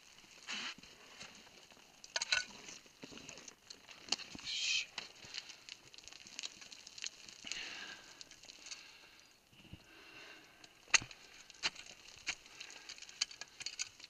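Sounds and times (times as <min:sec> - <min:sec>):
stones clicking: 0:01.7 - 0:08.9, 0:10.6 - 0:14.0.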